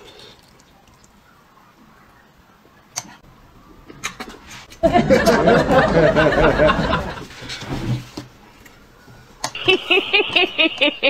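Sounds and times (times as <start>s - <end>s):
wavering laughter: 4.8s - 7.3s, 9.6s - 11.0s.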